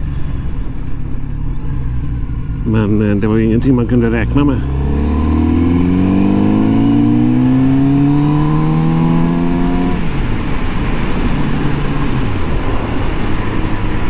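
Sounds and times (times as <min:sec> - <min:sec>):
motorcycle engine revving: 0:04.0 - 0:14.0
wind noise on microphone: 0:04.6 - 0:14.0.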